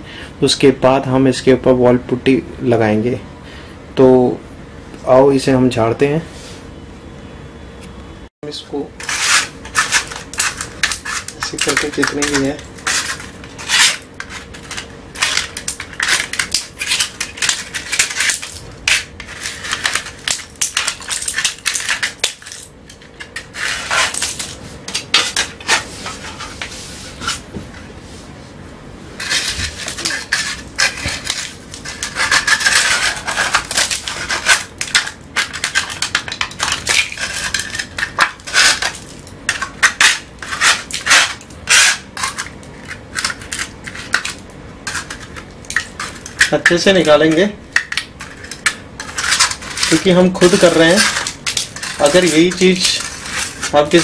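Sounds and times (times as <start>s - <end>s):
metal scraper rasping on wall: 9.0s - 22.6s, 23.2s - 26.6s, 29.2s - 45.4s, 46.0s - 54.0s.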